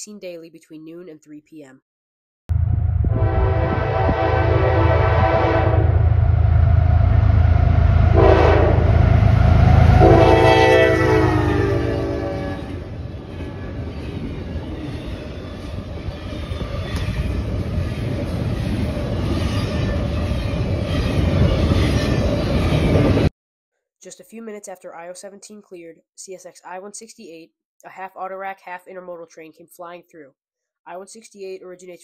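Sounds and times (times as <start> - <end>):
diesel locomotives rumbling: 2.5 - 23.3
train horn blasts: 3.0 - 6.4, 8.0 - 13.0
wheels rattling on rails: 12.4 - 23.3.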